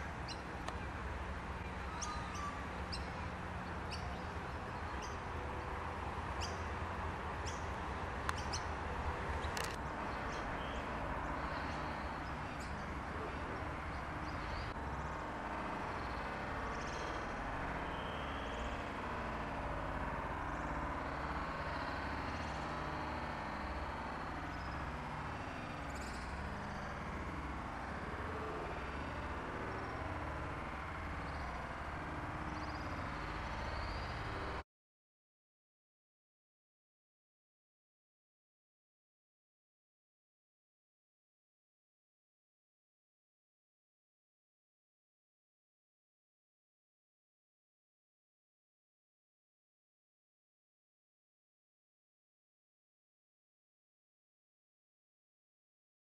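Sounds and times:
faint bird chirps: 0:01.6 - 0:05.2, 0:15.9 - 0:18.9.

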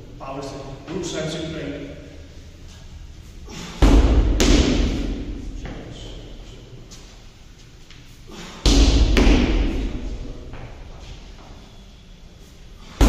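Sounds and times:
medicine ball thudding against wall: 0:03.5 - 0:05.7, 0:08.6 - 0:10.1.

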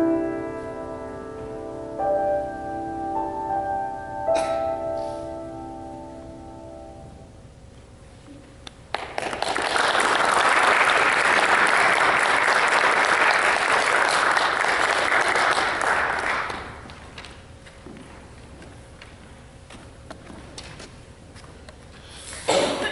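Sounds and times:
audience applauding: 0:08.9 - 0:17.3.

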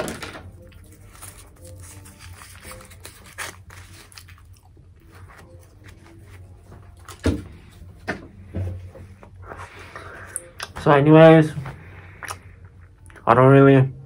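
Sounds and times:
gum chewing: 0:12.1 - 0:13.2.

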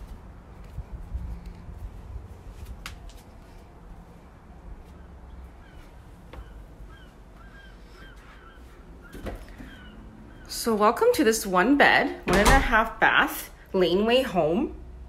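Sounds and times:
short bird calls: 0:05.0 - 0:10.5.

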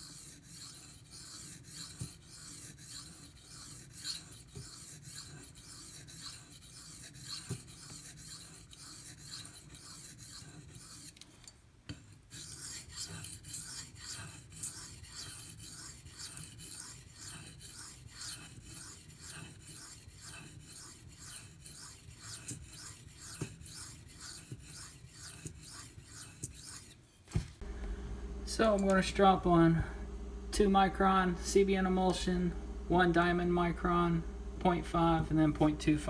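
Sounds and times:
knife scraping on sharpening stone: 0:00.0 - 0:11.2, 0:12.0 - 0:27.0.

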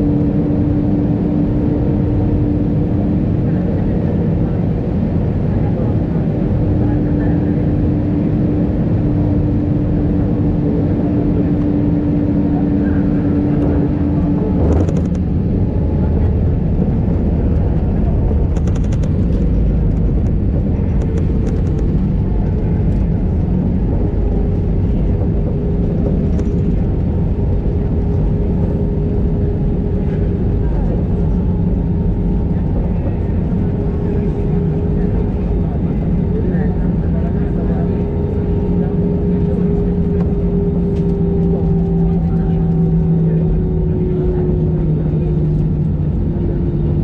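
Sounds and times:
loud rumble of aircraft engines: 0:00.0 - 0:47.0
rattling clicks in cabin: 0:14.6 - 0:15.3, 0:18.4 - 0:23.1, 0:25.9 - 0:26.8.

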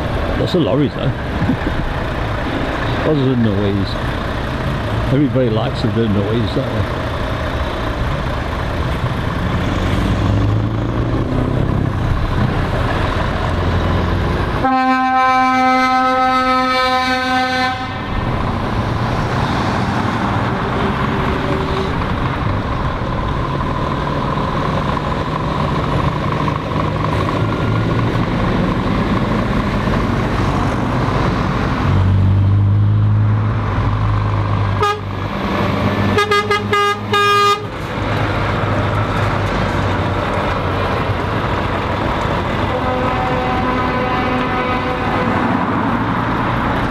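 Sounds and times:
lorries driving past: 0:00.0 - 0:46.9
truck horn blast: 0:14.6 - 0:18.2, 0:34.8 - 0:35.2, 0:36.1 - 0:37.8, 0:42.6 - 0:45.5.

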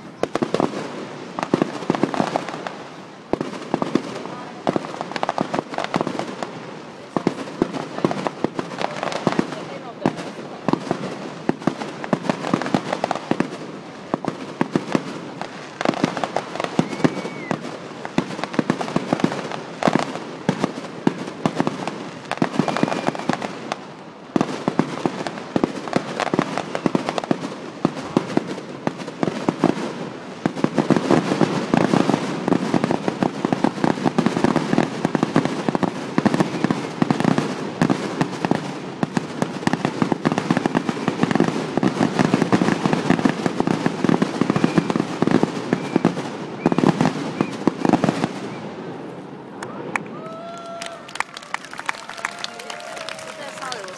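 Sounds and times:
fireworks crackling and banging: 0:00.0 - 0:53.9.

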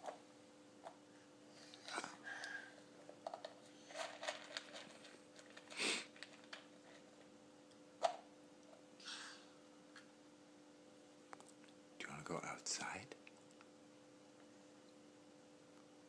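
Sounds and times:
plastic snack cup clicks and rustles: 0:03.2 - 0:07.0.

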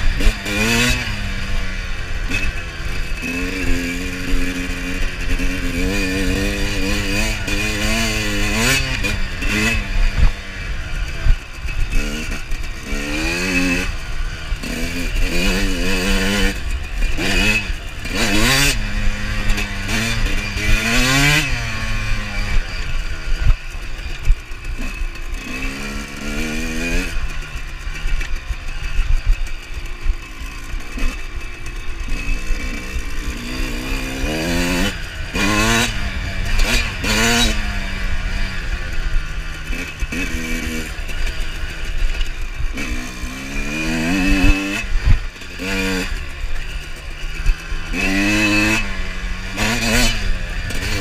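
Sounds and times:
low rumble of wind: 0:00.0 - 0:51.0
motocross bike engine revving: 0:00.0 - 0:51.0.

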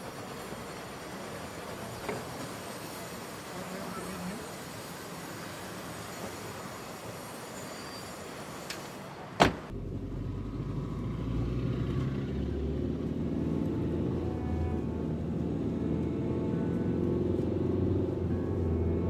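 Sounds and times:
car door slamming: 0:09.4 - 0:09.7.

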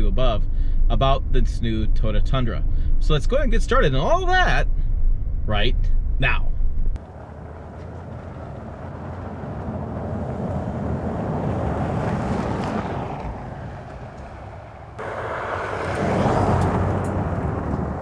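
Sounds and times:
pickup truck driving on gravel: 0:07.0 - 0:18.0.

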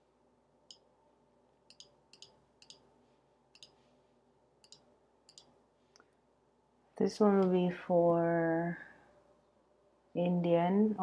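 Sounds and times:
computer mouse clicks: 0:01.7 - 0:02.9, 0:03.6 - 0:03.8, 0:04.6 - 0:05.5.

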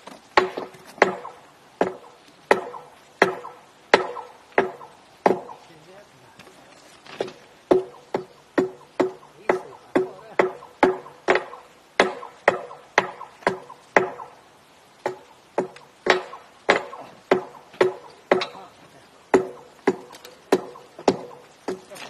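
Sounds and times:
hammer clanking on steel rail: 0:00.4 - 0:05.6, 0:07.7 - 0:14.3, 0:15.0 - 0:18.7.

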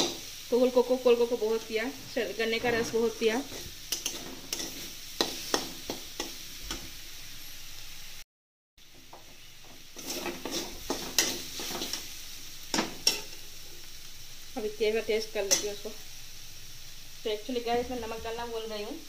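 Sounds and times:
greens sizzling in a pan: 0:00.0 - 0:08.2, 0:08.8 - 0:19.0
spatula scraping a metal pan: 0:01.6 - 0:06.8, 0:10.0 - 0:12.1.

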